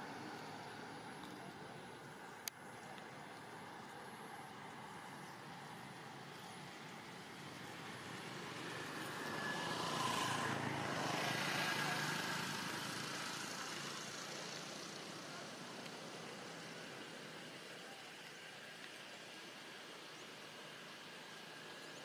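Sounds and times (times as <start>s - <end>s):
vehicle passing by: 7.2s - 15.8s.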